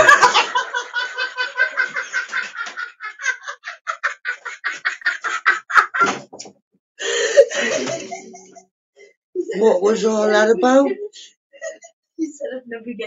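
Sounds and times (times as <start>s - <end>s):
man laughing hard: 0.0s - 6.2s, 7.1s - 8.6s.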